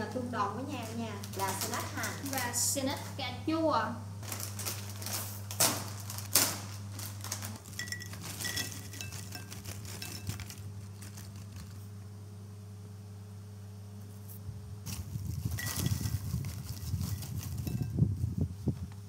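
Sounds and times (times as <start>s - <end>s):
low steady hum: 0.0s - 19.0s
foil bag tearing open: 0.8s - 3.1s, 4.2s - 11.9s, 14.8s - 17.7s
snacks rattling into ceramic bowl: 6.2s - 11.8s.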